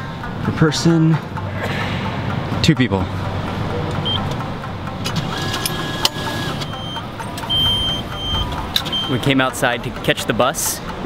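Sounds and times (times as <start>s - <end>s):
short electronic beeps: 4.0s - 4.3s, 6.5s - 9.2s
machine mechanism whirring: 5.0s - 9.5s.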